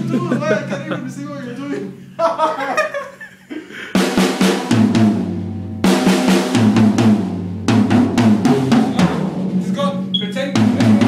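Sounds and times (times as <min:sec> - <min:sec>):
drum kit playing fast: 0:03.8 - 0:11.0.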